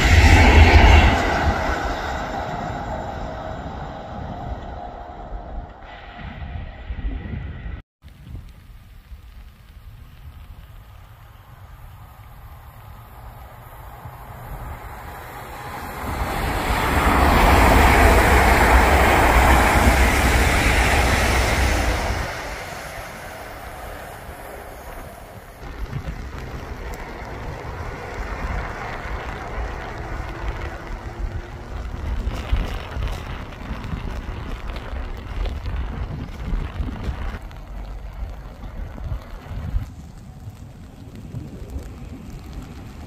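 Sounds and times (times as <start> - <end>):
electric train passing: 0.0 - 7.8, 10.8 - 36.1
steady rumble: 0.0 - 43.0
wind on microphone: 0.0 - 43.0.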